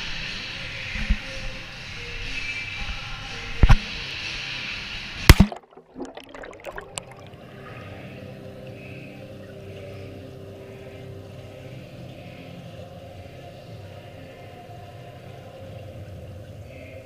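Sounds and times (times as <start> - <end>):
clicks and bubbles: 5.3 - 7.4
splash into water: 5.3 - 7.4.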